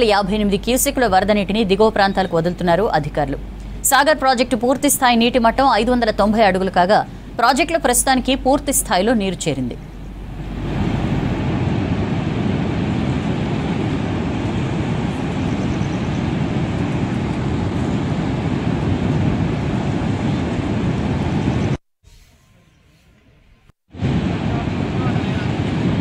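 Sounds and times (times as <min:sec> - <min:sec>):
quiet water hush: 0:09.8 - 0:12.1.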